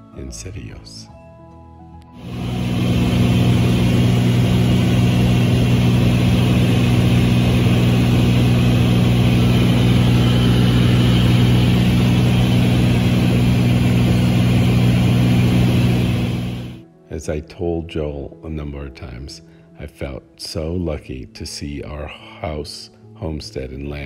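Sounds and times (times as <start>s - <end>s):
propeller plane engine droning: 2.2s - 16.8s
rushing air noise: 2.2s - 16.8s.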